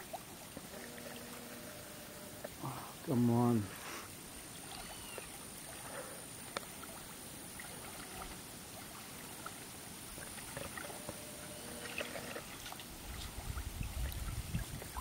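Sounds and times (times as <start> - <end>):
river water lapping and splashing: 0.0 - 15.0
thin high whine: 0.6 - 3.8, 10.6 - 12.6
light ticks: 6.5 - 6.7.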